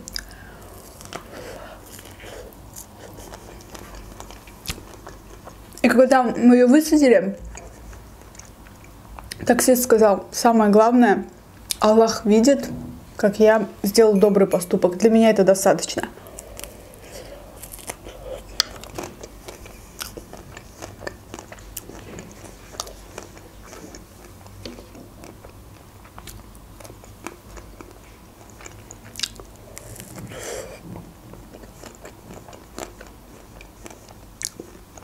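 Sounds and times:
biting and chewing ice cream bar: 0.1 - 5.6, 16.3 - 30.4, 31.3 - 35.0
chocolate coating crunching: 16.1 - 30.3.

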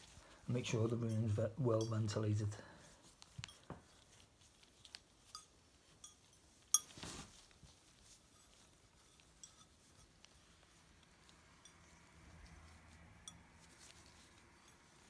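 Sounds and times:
cloth rubbing on tile: 2.9 - 15.0
glaze cracking pings: 5.2 - 7.0.

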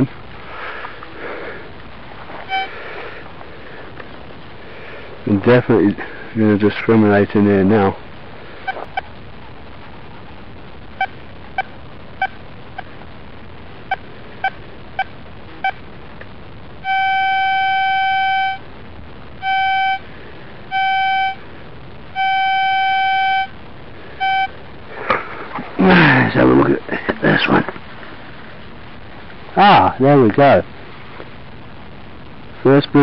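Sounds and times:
metal detector blips and beeps: 2.5 - 2.7, 16.9 - 18.6, 19.4 - 20.0, 20.7 - 21.4, 22.2 - 23.5, 24.2 - 24.5.

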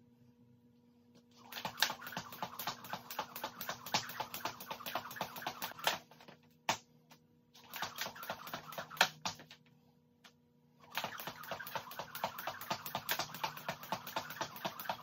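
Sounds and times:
jump rope slapping concrete: 1.5 - 6.1, 7.6 - 9.6, 10.9 - 15.0.

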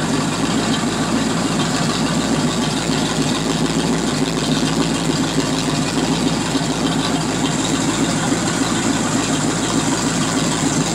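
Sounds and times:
boat engine idling: 0.0 - 10.9.

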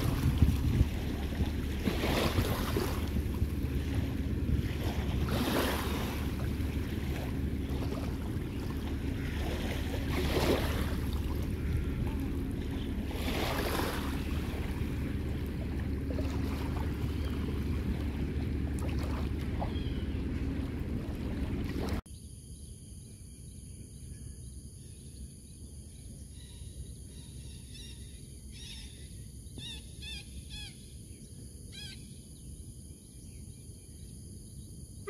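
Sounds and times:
small waves washing in: 0.0 - 22.0
wind rumbling on microphone: 0.0 - 22.0.

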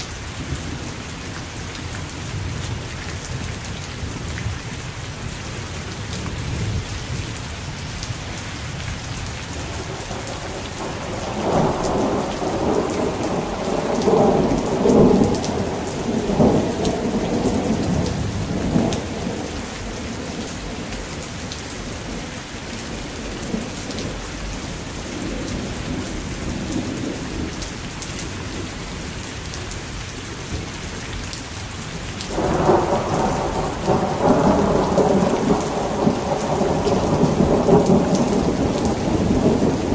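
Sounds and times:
steady rain falling: 0.0 - 39.9
thunder rumbling: 9.6 - 27.6, 32.3 - 39.9.

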